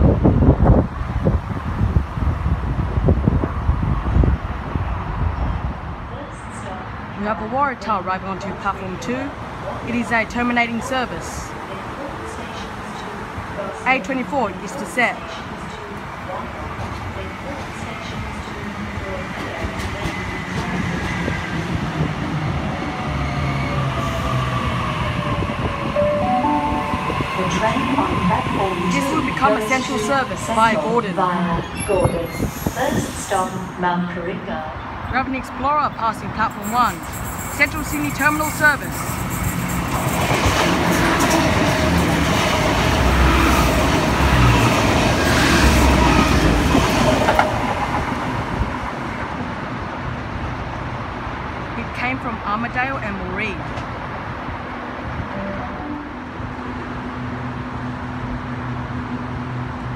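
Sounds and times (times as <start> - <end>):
wheel-on-rail noise: 36.5 - 49.5.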